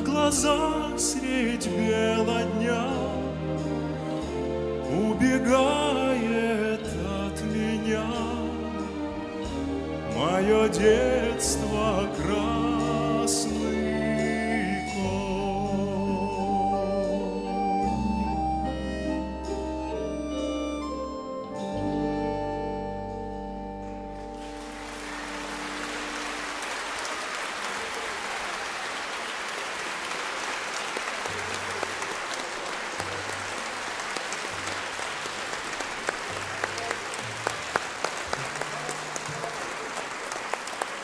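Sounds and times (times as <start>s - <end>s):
orchestra sustained chords: 0.0s - 27.8s
audience applause: 24.2s - 41.0s.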